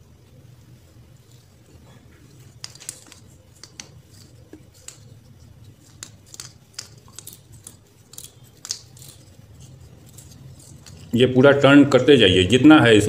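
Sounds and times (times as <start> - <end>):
wire winding by hand: 1.2 - 11.2.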